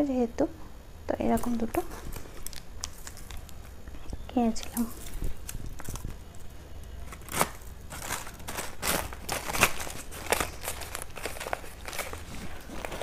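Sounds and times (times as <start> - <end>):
plastic packet crinkling: 1.4 - 13.0.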